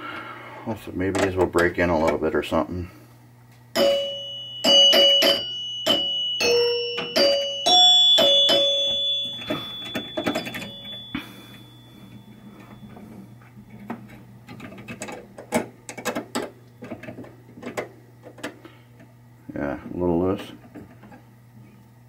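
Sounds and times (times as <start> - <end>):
chime bars ringing: 3.8 - 13.7.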